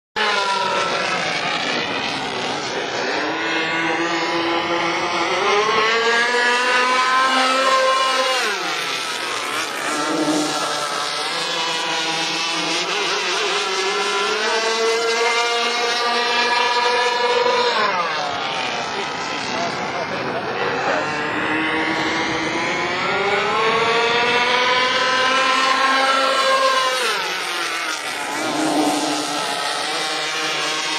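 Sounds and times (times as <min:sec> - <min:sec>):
model boat engines racing: 0:00.2 - 0:30.9.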